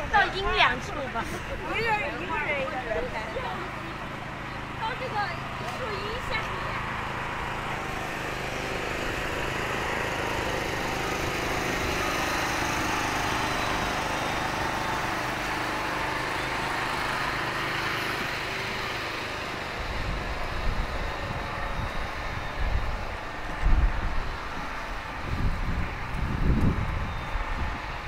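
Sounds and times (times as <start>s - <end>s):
motor engine running: 0.0s - 28.0s
wind buffeting microphone: 19.7s - 28.0s.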